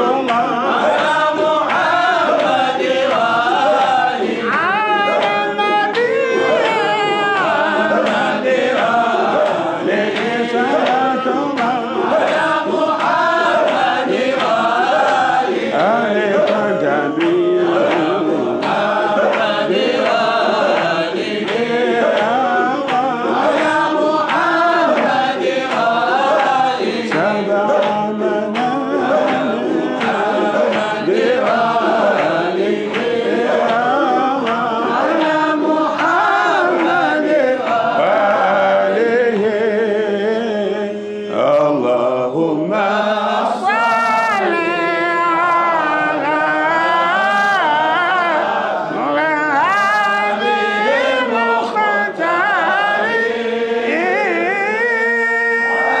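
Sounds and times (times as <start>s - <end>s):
men chanting: 0.0s - 56.0s
man singing into a microphone: 4.4s - 8.0s, 15.7s - 19.3s, 37.0s - 56.0s.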